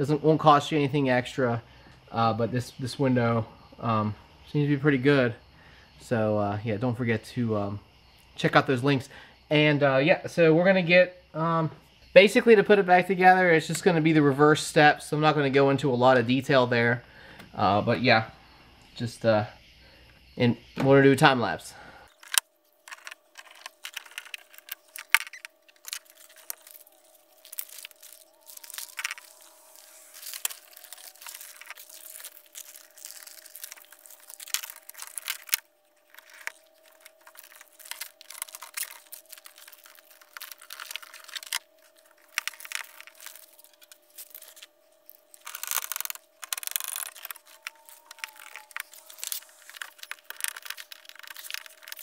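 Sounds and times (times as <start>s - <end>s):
faint steady hum: 0.0s - 52.0s
rapid clicks crackles and rustles: 22.1s - 52.0s.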